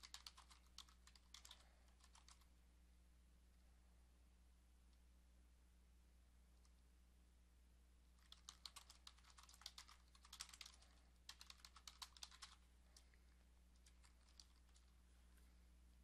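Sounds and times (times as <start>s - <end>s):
typing on computer keyboard: 0.0s - 2.5s, 8.2s - 13.1s, 13.8s - 14.9s.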